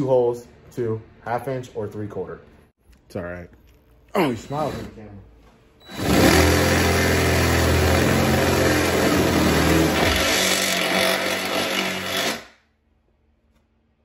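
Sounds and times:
impact driver drilling metal: 5.9s - 12.5s.

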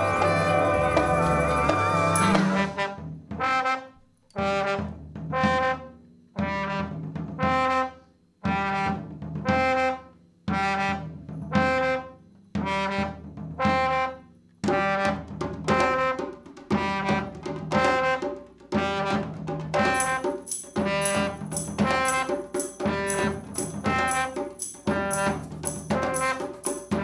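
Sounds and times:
brass ensemble two-note phrase: 0.0s - 3.0s
drum hits: 0.0s - 3.0s, 19.4s - 27.0s.

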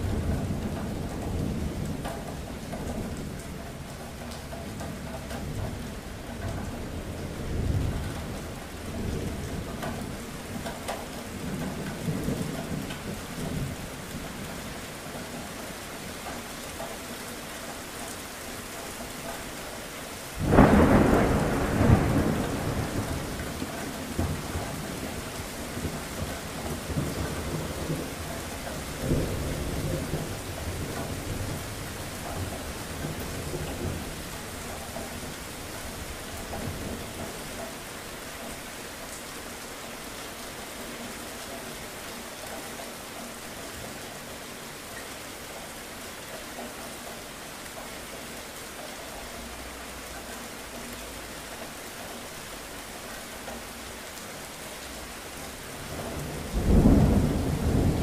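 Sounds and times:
steady rain: 0.0s - 58.0s
loud thunderclap: 20.4s - 24.9s, 55.9s - 58.0s
thunder rumbling: 20.4s - 37.4s, 55.8s - 58.0s.

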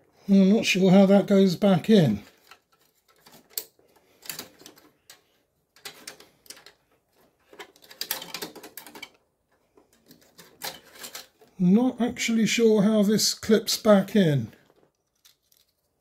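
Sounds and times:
drive caddy clicking and rattling: 7.4s - 9.2s, 9.8s - 11.5s.

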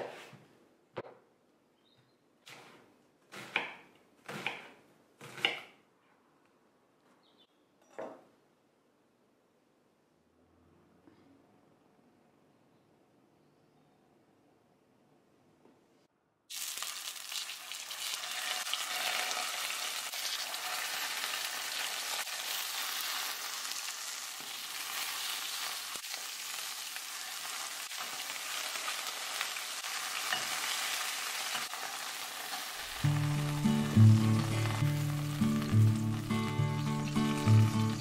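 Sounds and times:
fish sizzling in a frying pan: 16.5s - 38.0s
background music: 33.0s - 38.0s.

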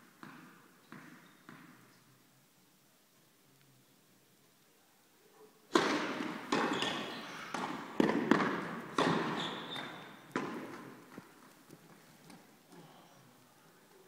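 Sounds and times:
tennis ball hits with echo: 5.7s - 11.0s.

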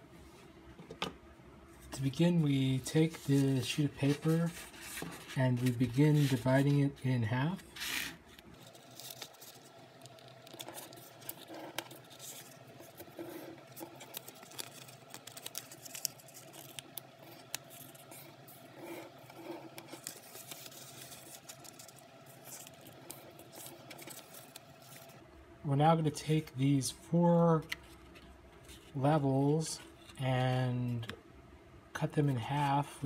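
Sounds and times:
paper rustling and crinkling: 1.9s - 6.9s, 7.6s - 25.2s.

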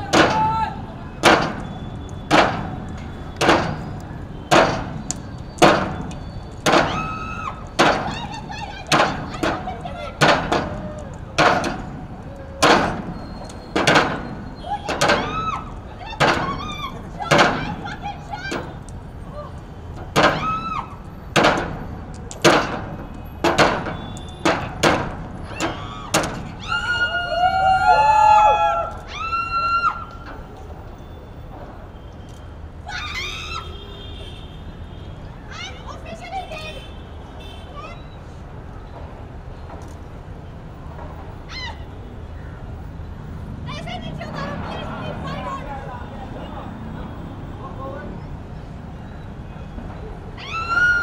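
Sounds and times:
people shouting: 0.0s - 1.6s, 6.7s - 13.3s, 13.9s - 19.6s, 20.2s - 21.0s, 25.5s - 30.2s
axe chopping wooden beam: 4.5s - 5.0s, 11.4s - 11.8s, 13.8s - 14.2s, 21.4s - 21.7s.

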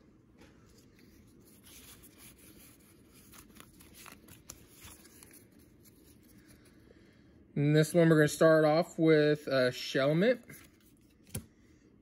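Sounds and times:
trading cards rustling: 0.6s - 6.8s.

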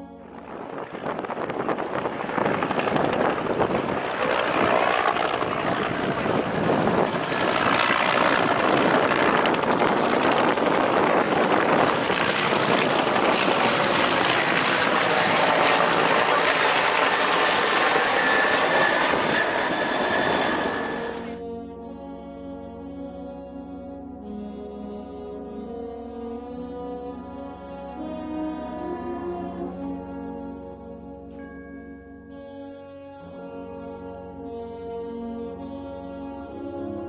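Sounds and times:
helicopter flying past: 0.0s - 26.5s.

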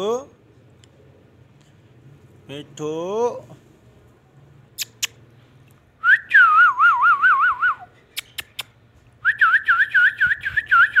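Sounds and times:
sharp clicks: 8.1s - 8.8s.

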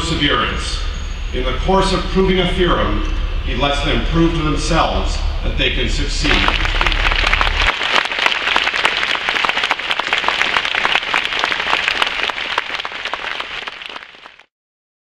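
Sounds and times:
audience applauding: 6.3s - 14.5s.

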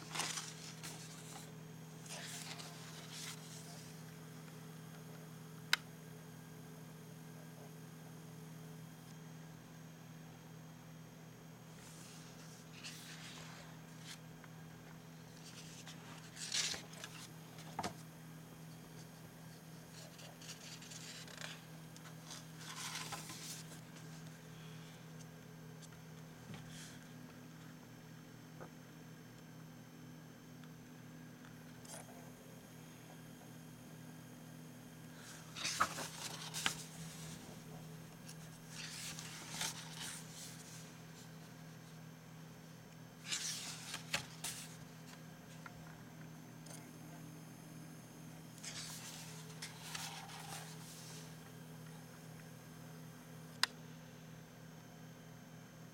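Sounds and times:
paper rustling: 0.0s - 4.0s, 11.8s - 14.2s, 15.3s - 18.0s, 19.7s - 24.4s, 35.2s - 41.5s, 43.2s - 45.7s, 48.6s - 51.3s
comic book pages turning: 0.0s - 4.1s, 11.8s - 14.3s, 15.3s - 18.1s, 19.0s - 24.4s, 35.2s - 41.5s, 43.2s - 45.7s, 48.6s - 51.4s
low steady hum: 0.0s - 55.9s.

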